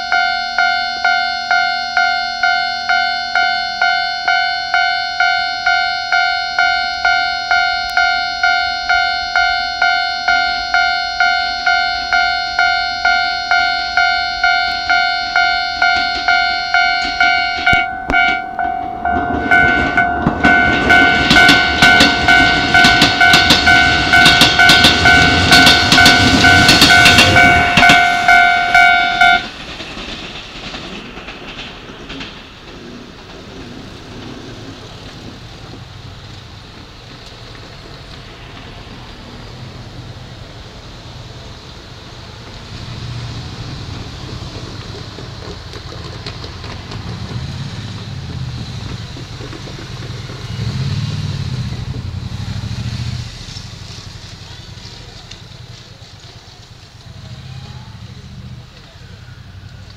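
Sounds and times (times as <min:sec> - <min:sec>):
crossing warning bell ringing: 0:00.0 - 0:31.6
train wheel clatter: 0:00.0 - 0:59.9.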